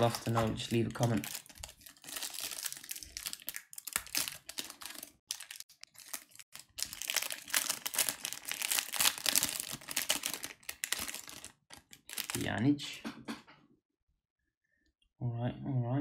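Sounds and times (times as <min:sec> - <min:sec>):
wrapper crinkling and tearing: 0:00.0 - 0:12.5.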